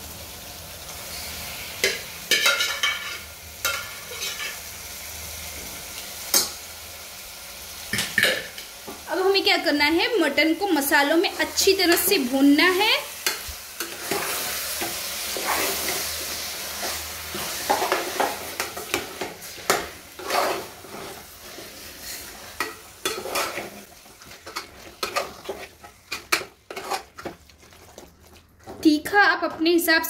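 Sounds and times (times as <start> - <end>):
meat sizzling: 0.0 - 30.0
metal spoon scraping pot: 16.8 - 28.9.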